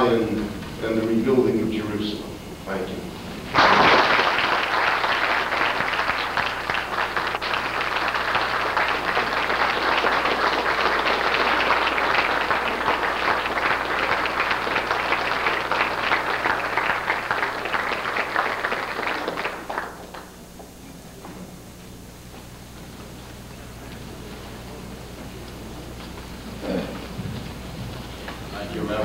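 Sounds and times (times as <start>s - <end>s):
audience applauding: 3.5s - 20.8s.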